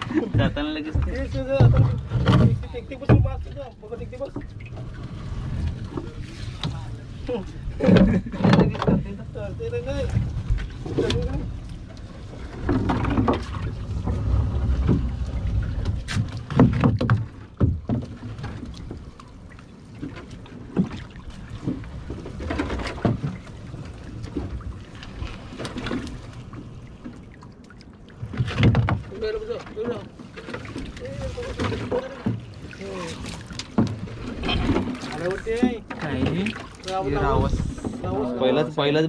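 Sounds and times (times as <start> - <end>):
water sloshing and splashing: 0.0 - 39.0
knocks against boat hull: 0.2 - 3.5, 15.8 - 18.2.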